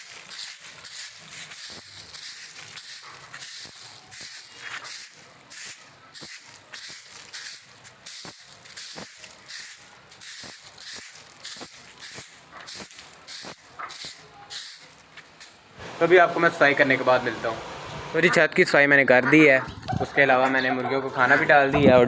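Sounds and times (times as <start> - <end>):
broom sweeping concrete floor: 0.0 - 16.0.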